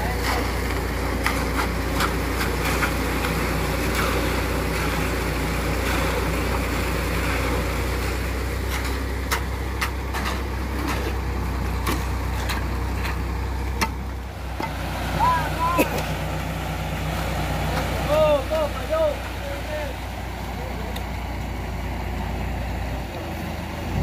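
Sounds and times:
engine droning steadily: 0:00.0 - 0:24.0.

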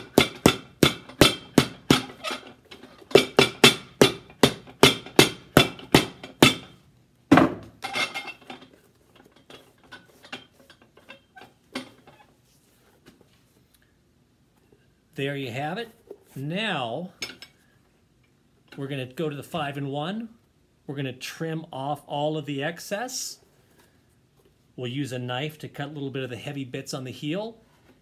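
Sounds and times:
hammer striking boot sole: 0:00.0 - 0:02.2, 0:03.1 - 0:06.7.

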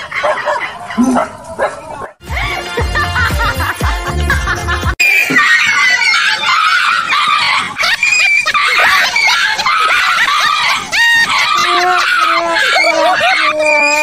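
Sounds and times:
dog yelping and screaming: 0:00.0 - 0:02.2, 0:05.2 - 0:14.0.

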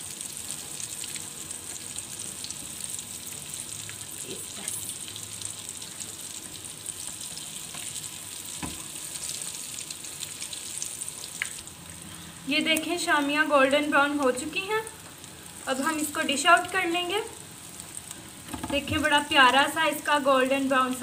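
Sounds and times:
food sizzling in hot oil: 0:00.0 - 0:21.0
knock: 0:18.5 - 0:19.0.

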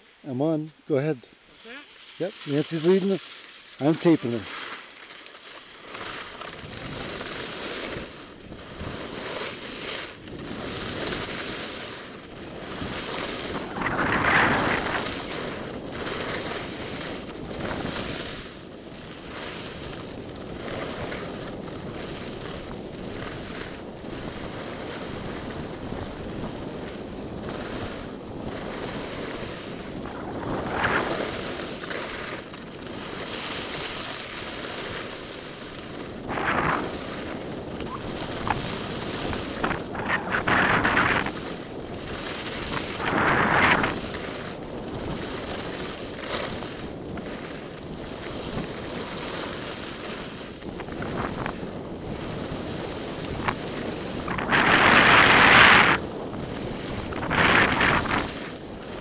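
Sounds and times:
skis sliding over snow: 0:00.6 - 0:59.0
loud ski swooshes: 0:01.6 - 0:59.0
wind rushing over microphone: 0:06.1 - 0:59.0.

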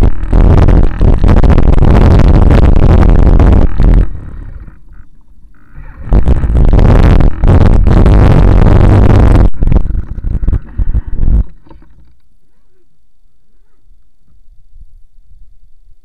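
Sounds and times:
wind buffeting microphone: 0:00.0 - 0:12.1.

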